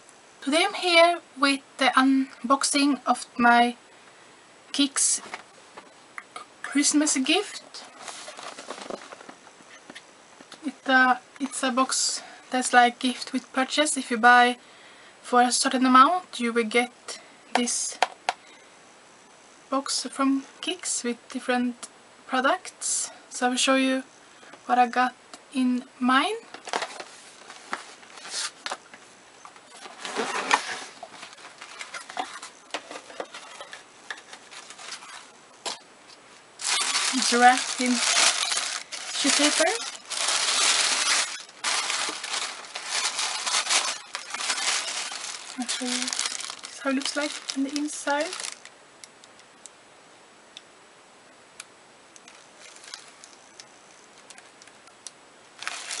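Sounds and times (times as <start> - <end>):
tissue paper rustling: 7.8 - 9.3, 29.8 - 35.3, 36.6 - 48.7, 52.3 - 53.6, 55.6 - 56.0.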